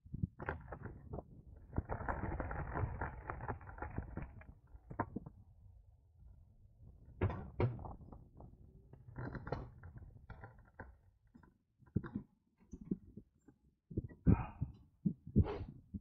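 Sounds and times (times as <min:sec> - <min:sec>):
hard objects knocking and rattling: 0:00.3 - 0:05.3.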